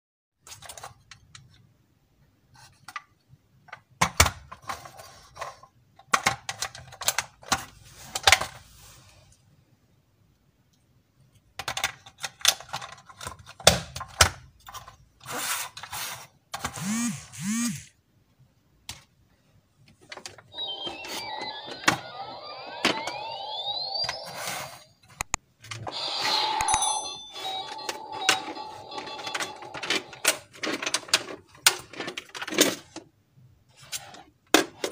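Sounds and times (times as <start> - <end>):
plastic toys clicking and clattering: 0.4 - 1.7, 2.7 - 8.6, 11.4 - 17.6, 27.4 - 33.1, 33.7 - 34.9
toy electronic beeps and rising tone: 16.8 - 17.9, 20.5 - 25.1, 25.9 - 30.3.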